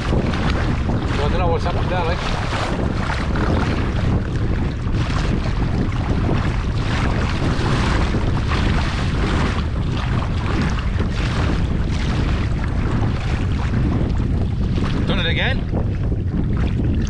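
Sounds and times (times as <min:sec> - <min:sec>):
water splashing against kayak hull: 0:00.0 - 0:17.0
wind buffeting microphone: 0:00.0 - 0:17.0.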